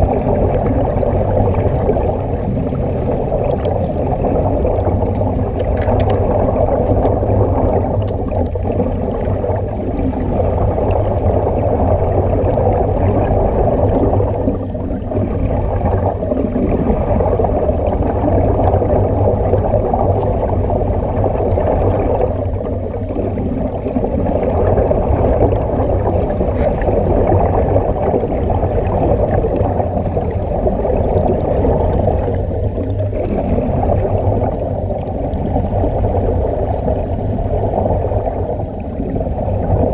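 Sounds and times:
gurgling air bubbles: 0.0 - 39.9
muffled underwater rumble: 0.0 - 39.9.

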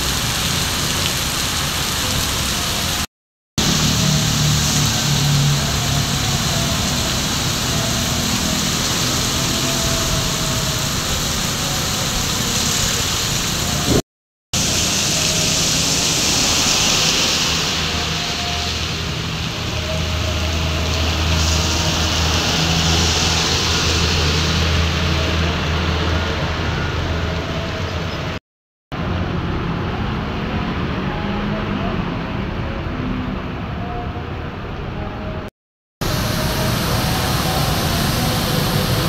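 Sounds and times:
heavy rain hiss: 0.0 - 14.0, 14.6 - 25.7, 36.0 - 39.0
tyres on flooded road: 0.0 - 14.0, 14.6 - 39.0
car and motorbike engines: 3.6 - 14.0, 14.6 - 28.4, 36.0 - 39.0.

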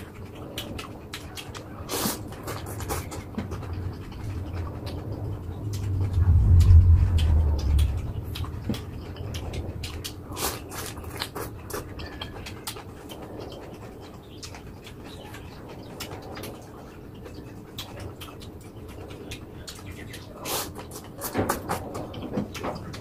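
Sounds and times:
wet chewing with clicks: 0.0 - 23.0
slurping noodles: 1.8 - 3.3.

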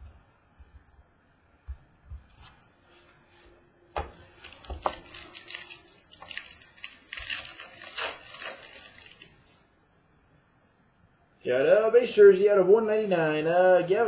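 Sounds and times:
cards rustling and clicking: 4.4 - 9.4
wrapper crinkling and tearing: 4.4 - 9.6.

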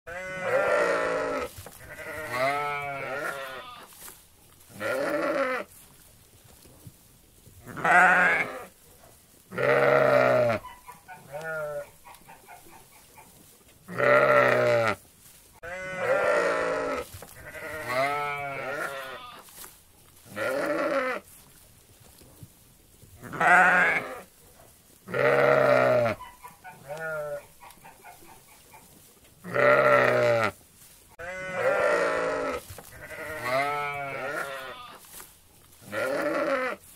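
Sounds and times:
sheep bleating: 0.1 - 3.9, 4.7 - 5.7, 7.7 - 8.7, 9.5 - 11.9, 13.9 - 15.0, 15.6 - 19.4, 20.3 - 21.2, 23.2 - 24.3, 25.1 - 27.5, 29.4 - 30.6, 31.2 - 35.0, 35.8 - 36.8.

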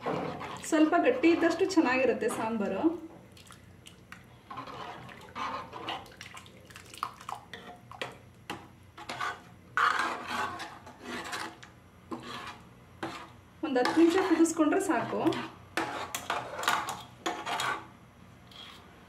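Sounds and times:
metal ladle scraping pot: 0.0 - 2.8, 4.4 - 6.2, 9.0 - 17.9, 18.5 - 18.8
liquid sloshing: 3.3 - 8.0.

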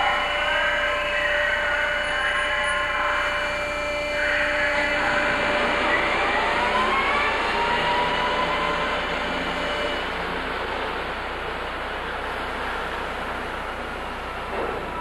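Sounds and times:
industrial machinery whirring: 0.0 - 15.0.

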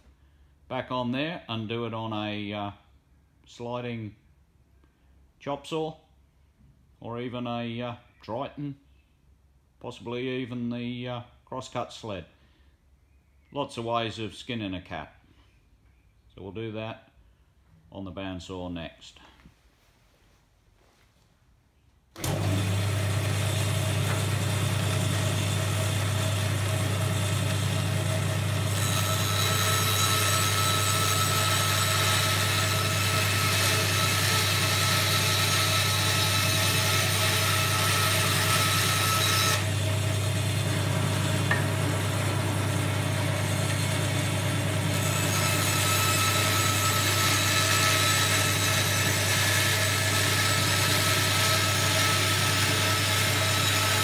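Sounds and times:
bandsaw motor humming: 22.2 - 54.0
saw blade rasping through timber: 25.0 - 39.7, 41.0 - 54.0.

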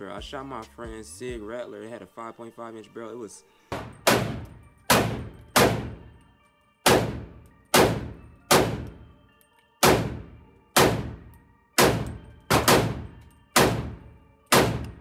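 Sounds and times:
gunshots echoing indoors: 3.7 - 6.1, 6.8 - 9.0, 9.8 - 15.0.

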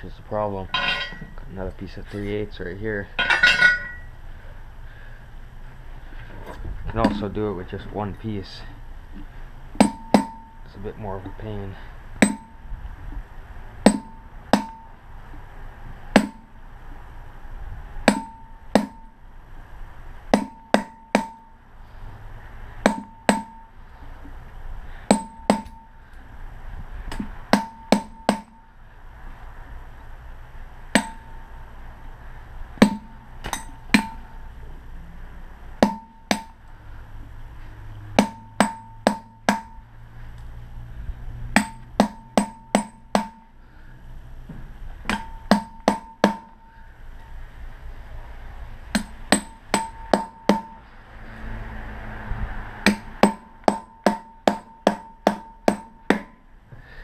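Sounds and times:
hammer striking steel punch: 9.8 - 10.6, 12.2 - 12.6, 13.8 - 15.0, 16.1 - 16.6, 18.1 - 19.1, 20.3 - 21.6, 22.8 - 23.7, 25.1 - 26.0, 27.1 - 28.7, 31.0 - 31.4, 32.8 - 34.4, 35.8 - 36.6, 38.2 - 39.8, 41.6 - 43.5, 45.1 - 46.7, 48.9 - 50.8, 52.8 - 56.4.

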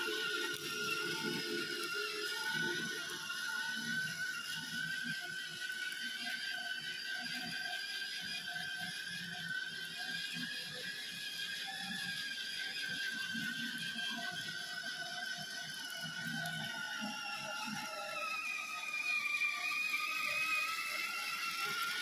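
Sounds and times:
plastic wheels rolling on stone: 0.0 - 6.8
toy car motor whining: 0.0 - 22.0.

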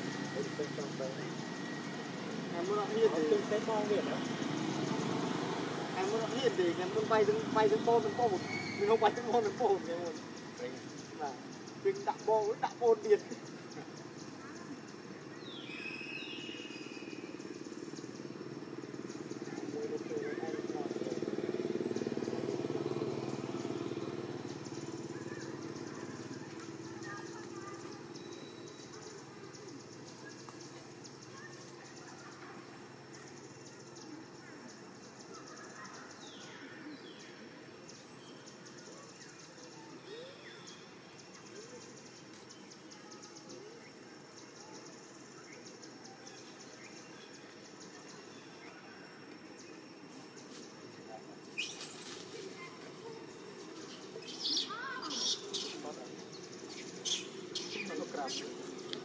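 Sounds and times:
background hiss: 0.0 - 59.0
bird chirps: 6.0 - 59.0
small engine running: 18.0 - 29.6.

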